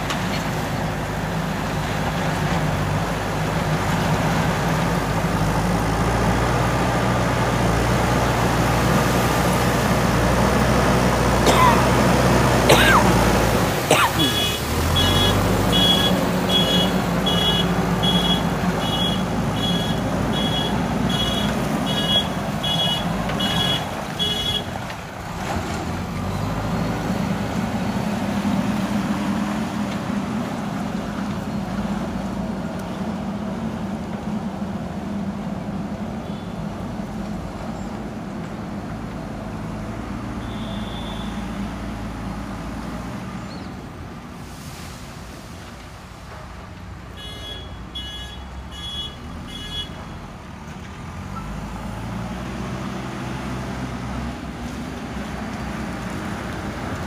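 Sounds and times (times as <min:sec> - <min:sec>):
diesel engine running under load: 0:00.0 - 0:44.9.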